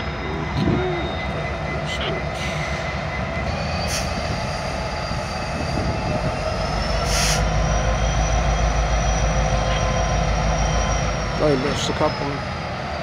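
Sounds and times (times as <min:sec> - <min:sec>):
diesel locomotive rumbling: 0:00.0 - 0:13.0
high wheel squeal: 0:00.0 - 0:13.0
short air hisses: 0:07.1 - 0:07.5.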